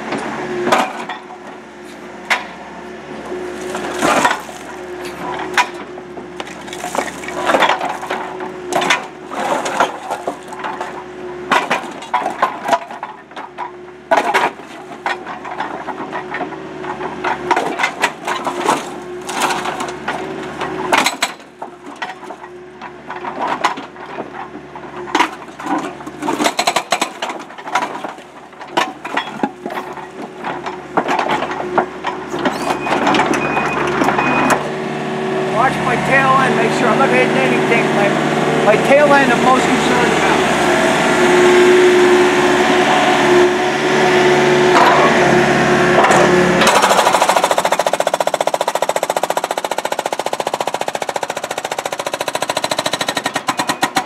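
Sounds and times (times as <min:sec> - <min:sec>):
excavator humming: 0:00.0 - 0:54.0
concrete chunks falling: 0:03.6 - 0:11.0
hydraulic hammer breaking concrete: 0:03.7 - 0:34.7, 0:45.9 - 0:54.0.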